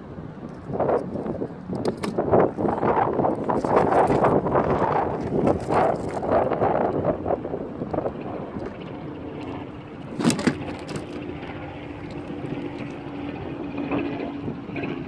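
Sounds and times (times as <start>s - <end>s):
engine drone: 0.0s - 15.0s
river water lapping: 2.3s - 7.4s, 8.3s - 14.4s.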